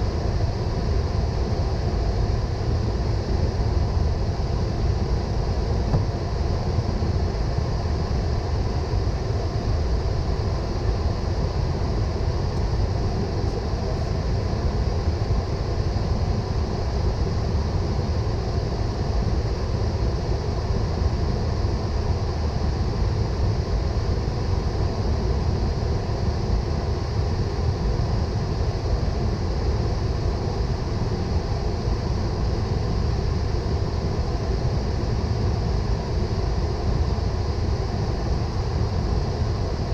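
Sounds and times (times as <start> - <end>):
low cockpit rumble: 0.0 - 22.1.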